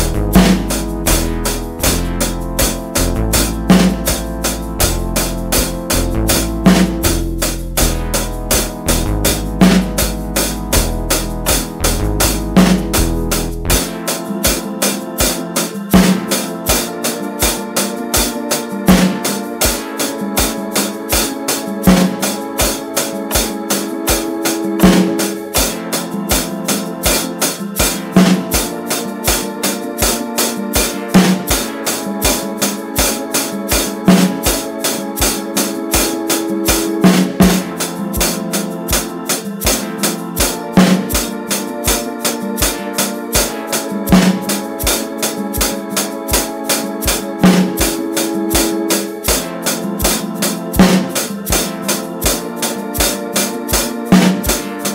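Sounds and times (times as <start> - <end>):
backing track chords and beats: 0.0 - 54.9
hi-hat groove: 0.0 - 54.9
snare drum hits: 23.3 - 26.5, 47.4 - 52.4.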